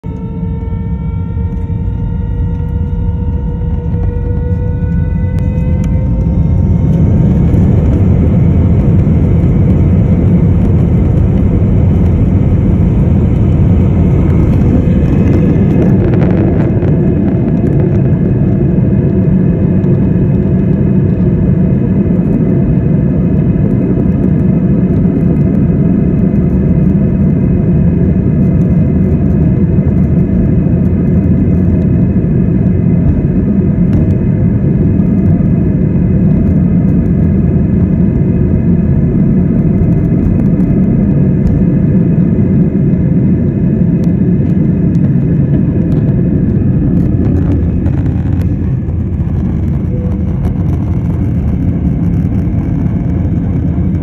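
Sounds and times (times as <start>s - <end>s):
jet engine rumble: 0.0s - 54.0s
jet engines spooling up: 0.1s - 21.5s, 37.2s - 54.0s.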